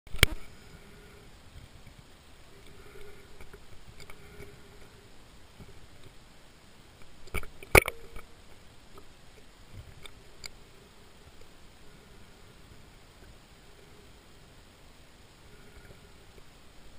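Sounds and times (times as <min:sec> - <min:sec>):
small clicks: 0:00.1 - 0:00.5
faint underwater hiss: 0:00.1 - 0:16.9.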